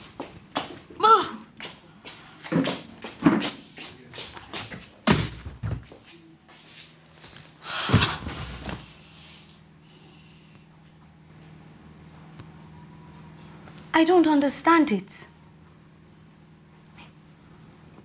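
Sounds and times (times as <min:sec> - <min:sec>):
heavy thumps of objects moved: 0:07.8 - 0:08.9.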